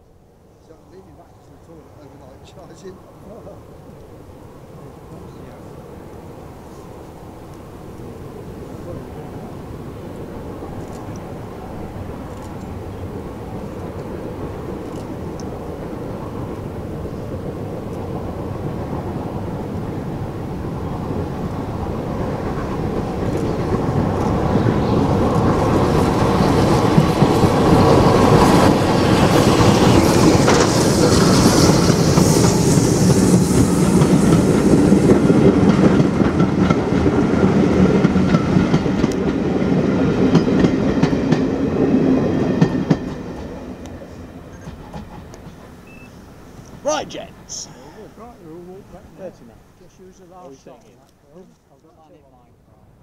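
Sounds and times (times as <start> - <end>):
steam locomotive exhaust beats: 15.5 - 46.8
wheels clacking over rail joints: 22.4 - 46.8.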